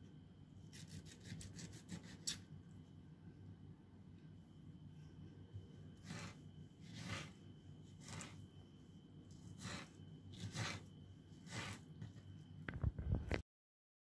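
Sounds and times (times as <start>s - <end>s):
knife cutting on wooden board: 6.0s - 7.4s, 8.0s - 8.4s, 9.3s - 12.2s.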